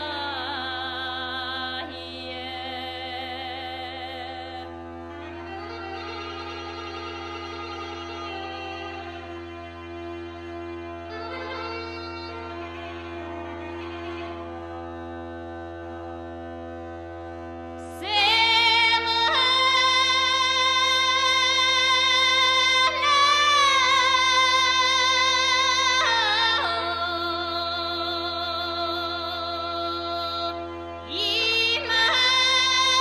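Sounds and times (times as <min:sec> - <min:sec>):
bagpipe with low drone: 0:00.0 - 0:33.0.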